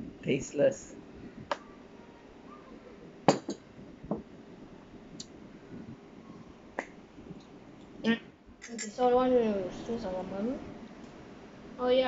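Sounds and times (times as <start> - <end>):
glass jug and metal spoon clinking: 8.6 - 9.0.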